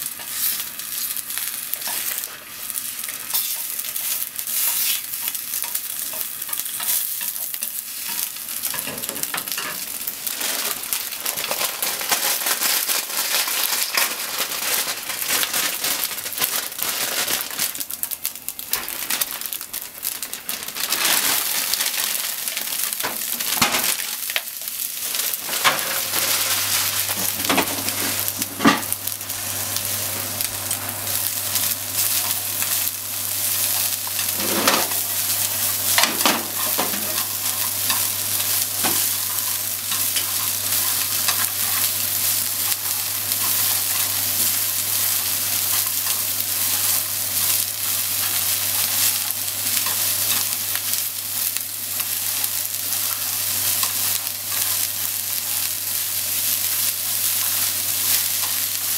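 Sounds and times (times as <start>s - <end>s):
vegetables sizzling in a frying pan: 0.0s - 58.9s
chopsticks scraping a pan: 3.0s - 12.4s, 31.9s - 35.0s, 35.9s - 42.0s.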